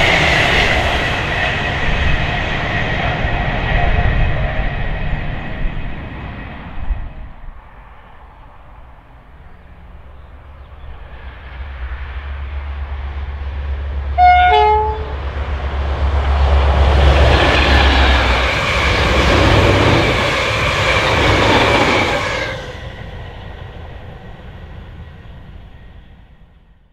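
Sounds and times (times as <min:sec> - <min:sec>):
train wheel noise: 0:00.0 - 0:26.5
diesel locomotive rumbling: 0:00.0 - 0:26.8
two-tone horn blast: 0:14.2 - 0:15.3.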